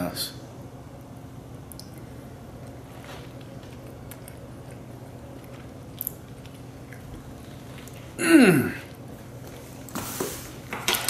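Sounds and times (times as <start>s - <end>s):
man chewing food: 1.0s - 10.0s
man humming approvingly: 8.2s - 8.9s.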